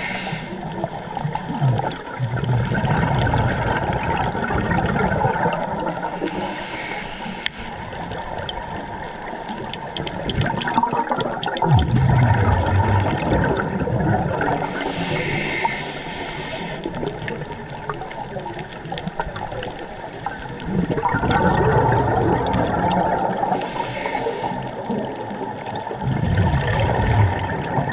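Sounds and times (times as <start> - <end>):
hissing inhale: 0.0 - 0.8, 6.0 - 8.2, 14.6 - 17.2, 23.5 - 24.9
regulator breathing underwater: 0.0 - 0.8, 6.0 - 8.2, 14.4 - 17.3, 23.3 - 24.9
bubbles gurgling: 0.0 - 6.6, 7.8 - 27.9
watery noise: 0.0 - 27.9.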